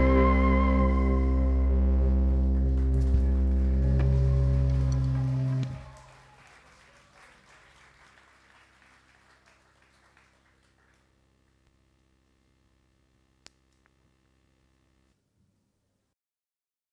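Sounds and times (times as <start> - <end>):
steady low hum: 0.0 - 6.0
audience applause: 2.3 - 11.1.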